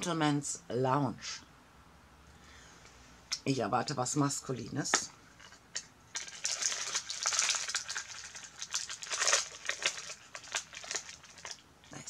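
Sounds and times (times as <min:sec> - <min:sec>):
packaging crinkling and rustling: 0:05.4 - 0:12.0.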